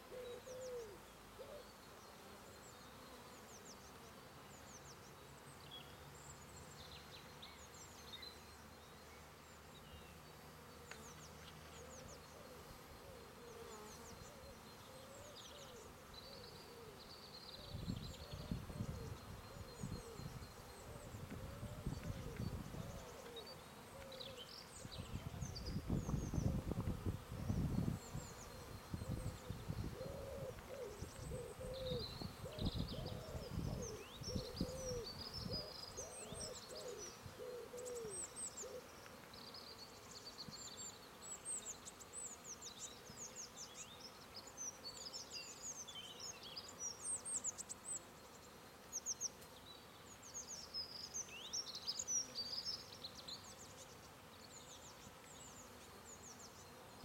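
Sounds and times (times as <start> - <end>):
bird hooting or cooing: 0.0 - 1.7, 17.7 - 24.5, 29.0 - 38.9
small birds chirping: 0.0 - 57.0.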